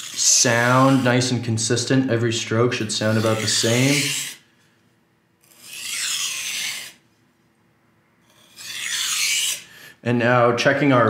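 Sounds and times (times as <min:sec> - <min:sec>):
knife scraping on whetstone: 0:00.0 - 0:01.2, 0:03.0 - 0:04.4, 0:05.4 - 0:07.0, 0:08.3 - 0:09.6.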